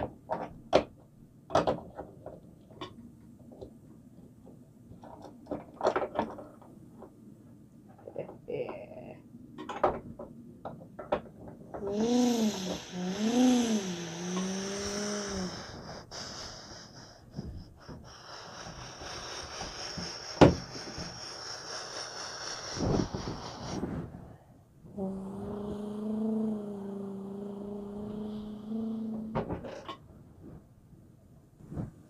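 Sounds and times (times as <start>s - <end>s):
person humming engine noise: 11.8s - 23.8s, 24.9s - 29.9s.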